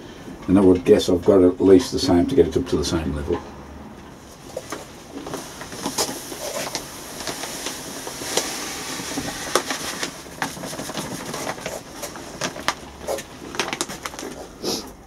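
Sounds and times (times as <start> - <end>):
granules pouring from plastic bag: 5.7 - 14.8.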